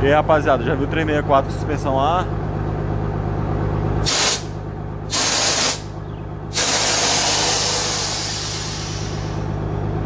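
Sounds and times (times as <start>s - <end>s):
bus air suspension hissing: 4.0s - 9.6s.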